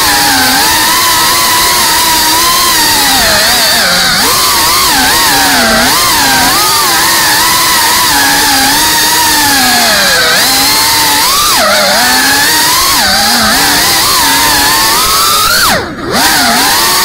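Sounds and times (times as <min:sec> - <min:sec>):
drone motors whining: 0:00.0 - 0:17.0.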